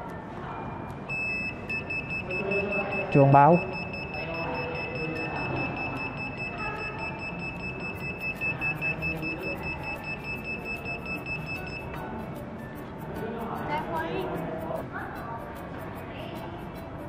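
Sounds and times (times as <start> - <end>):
high-pitched alarm buzzer: 1.1 - 12.5.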